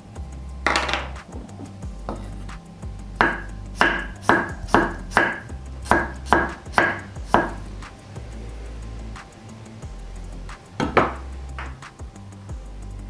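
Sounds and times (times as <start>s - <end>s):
knife chopping on wooden board: 3.2s - 7.6s, 10.8s - 11.7s.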